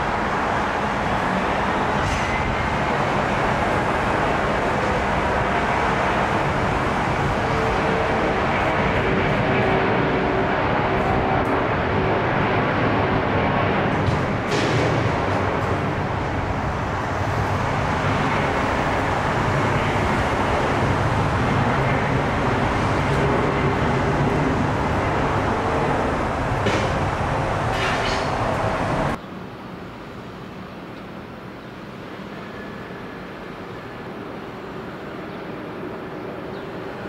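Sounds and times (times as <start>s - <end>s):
jet engines roaring: 0.0s - 29.2s
airport background noise: 0.0s - 37.0s.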